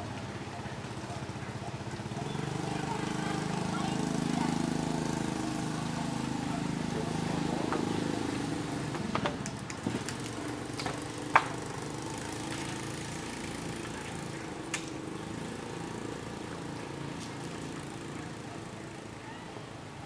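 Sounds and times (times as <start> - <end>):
motor engine running: 0.0 - 19.2.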